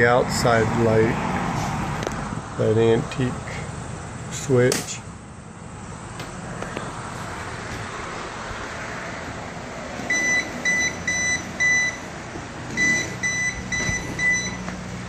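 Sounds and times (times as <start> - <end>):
voltage tester beeping: 10.1 - 12.1, 12.8 - 14.7.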